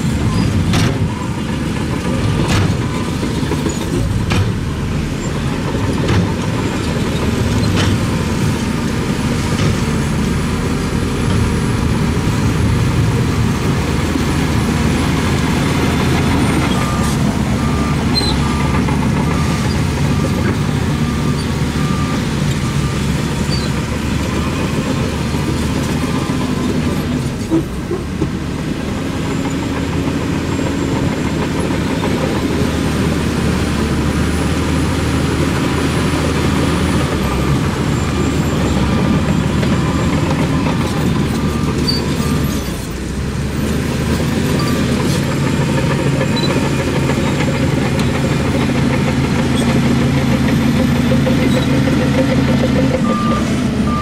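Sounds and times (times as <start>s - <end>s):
diesel earthmoving machinery: 0.0s - 54.0s
reversing alarm beeping: 11.2s - 27.1s, 35.4s - 43.0s, 51.1s - 54.0s.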